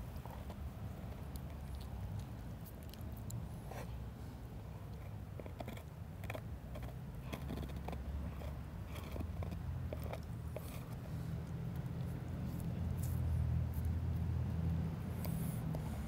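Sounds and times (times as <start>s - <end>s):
dog gnawing a bone: 0.0s - 3.8s, 4.7s - 16.0s.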